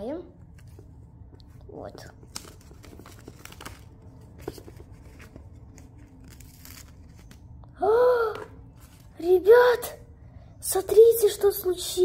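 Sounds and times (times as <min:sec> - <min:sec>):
paper rustling and crinkling: 0:00.5 - 0:07.6
crisp paper clicks: 0:02.2 - 0:07.6.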